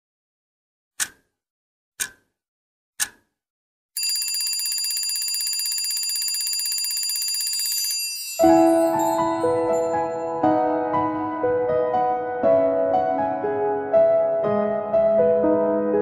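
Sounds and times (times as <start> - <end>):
telephone bell ringing: 4.0 - 10.4.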